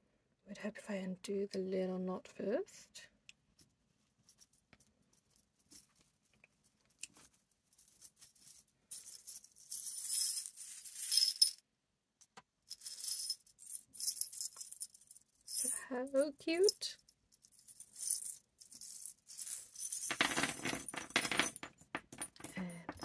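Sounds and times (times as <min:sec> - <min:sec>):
metal charms jingling in plastic bag: 0:12.8 - 0:23.0.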